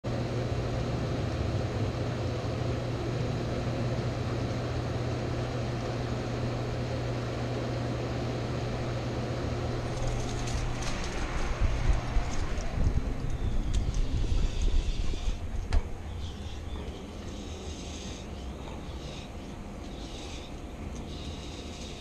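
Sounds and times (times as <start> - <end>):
low mechanical hum: 0.0 - 22.0
constant hiss: 0.1 - 22.0
clicks and rustles: 9.8 - 14.7.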